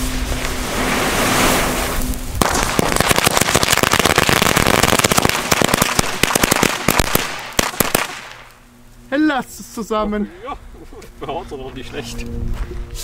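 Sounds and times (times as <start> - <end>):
firecracker fuse hissing: 0.0 - 8.6
rapid firecracker bangs: 0.8 - 8.5.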